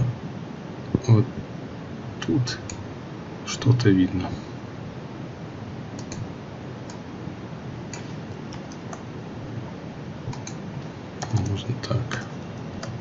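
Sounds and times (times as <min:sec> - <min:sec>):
steady background hiss: 0:00.0 - 0:13.0
keyboard and mouse clicks: 0:06.0 - 0:06.3, 0:07.9 - 0:09.1, 0:10.3 - 0:10.6, 0:11.2 - 0:13.0.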